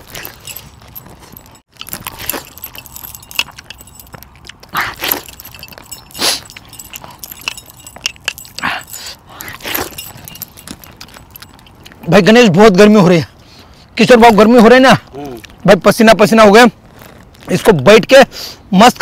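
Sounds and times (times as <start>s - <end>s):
steel plates clinking: 0.0s - 11.9s
short rustling: 0.0s - 12.0s
metal bracelets jangling: 0.0s - 12.6s.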